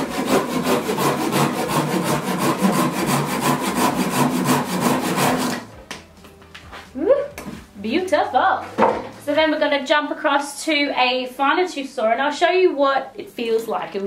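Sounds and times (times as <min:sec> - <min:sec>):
pull saw cutting through log: 0:00.0 - 0:05.6.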